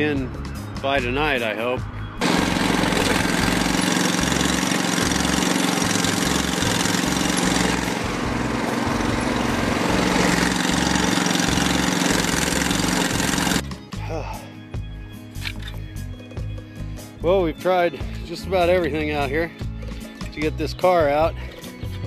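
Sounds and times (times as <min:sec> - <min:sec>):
small engine running: 0:02.2 - 0:13.7.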